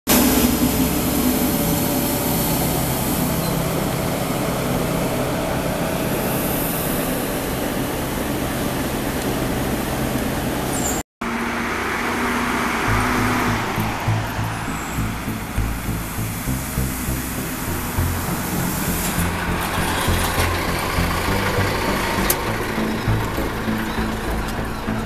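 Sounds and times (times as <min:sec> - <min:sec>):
vehicle engine hum: 0:00.1 - 0:25.0
rumbling noise: 0:12.6 - 0:25.0.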